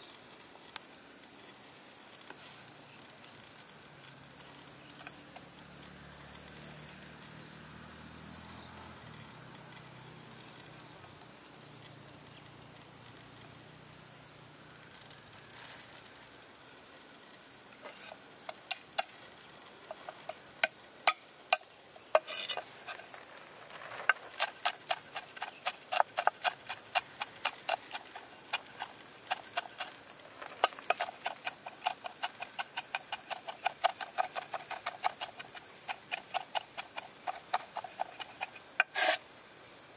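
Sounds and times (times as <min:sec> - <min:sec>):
insects chirring: 0:00.0 - 0:39.9
cleaver chopping on wooden board: 0:30.5 - 0:39.2.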